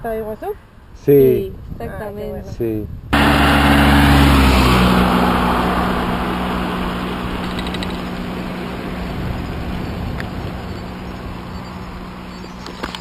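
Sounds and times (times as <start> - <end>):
vehicle passing by: 3.1 - 13.0.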